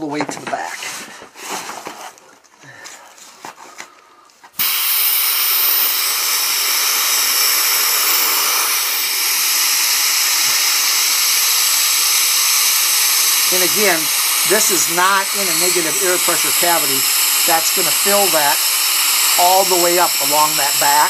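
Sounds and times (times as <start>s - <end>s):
air hose hissing: 4.6s - 21.0s.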